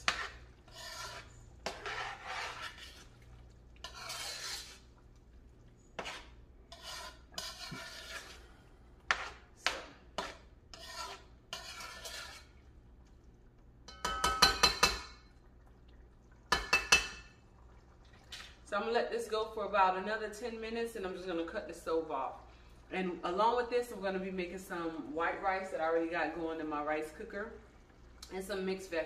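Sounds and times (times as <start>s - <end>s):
spoon stirring in metal pot: 0.0s - 12.6s, 13.8s - 15.3s, 16.5s - 17.4s.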